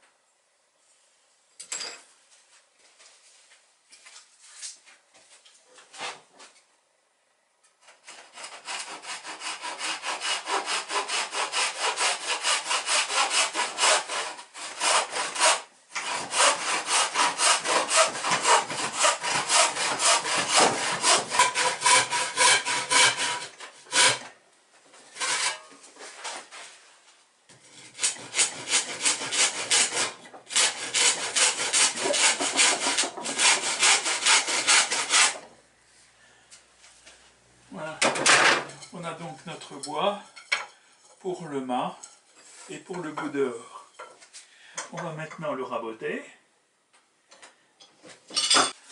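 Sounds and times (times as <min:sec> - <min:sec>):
handsaw ripping a board: 0:07.9 - 0:24.3, 0:25.2 - 0:26.6, 0:27.8 - 0:35.4.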